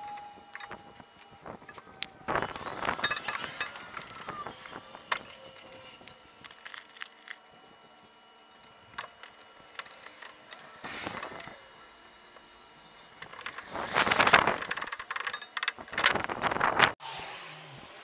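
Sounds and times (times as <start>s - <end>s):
rustling scrape: 13.2s - 14.9s.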